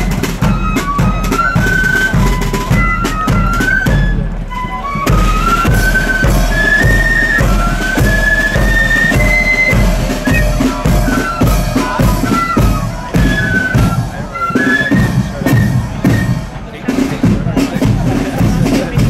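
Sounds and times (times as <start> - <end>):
flutes playing melody: 0.0 - 19.0
snare drums: 0.0 - 19.0
bass drum beat: 5.1 - 14.1, 17.2 - 19.0.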